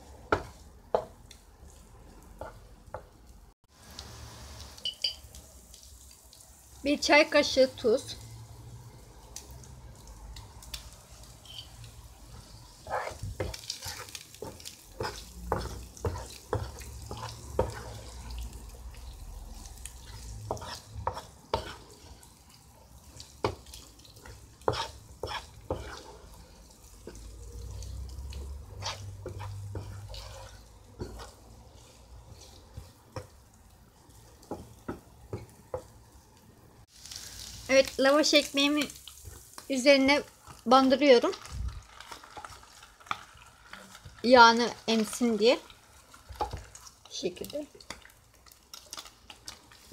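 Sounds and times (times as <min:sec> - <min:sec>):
wooden spatula scraping a pan: 0:00.0 - 0:03.1, 0:11.1 - 0:36.0
oil sizzling: 0:00.0 - 0:49.9.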